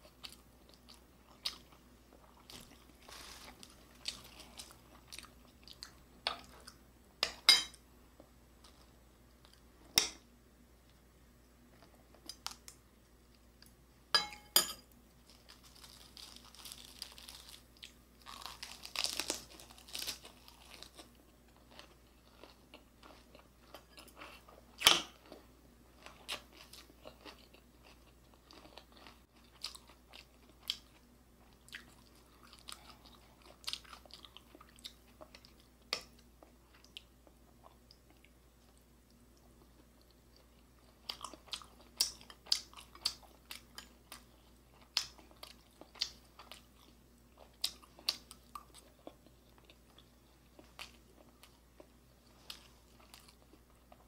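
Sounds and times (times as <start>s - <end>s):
person chewing and crunching: 0.0s - 6.8s, 15.1s - 54.0s.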